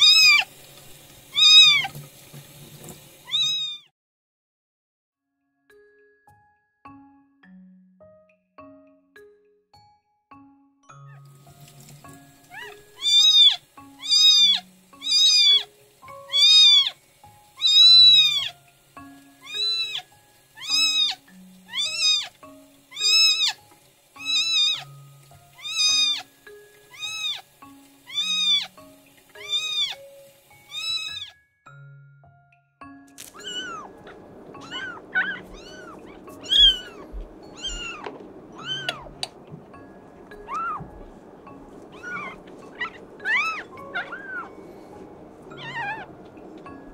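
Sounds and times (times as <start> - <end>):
kitten mewing: 0.0 - 0.5, 1.4 - 1.9, 3.3 - 3.9, 17.6 - 18.5, 19.4 - 20.0, 20.6 - 22.3, 25.6 - 26.2, 30.7 - 31.3, 33.3 - 39.2, 41.9 - 44.5
warm-air blower hissing: 0.0 - 3.4, 11.4 - 31.2, 33.2 - 46.9.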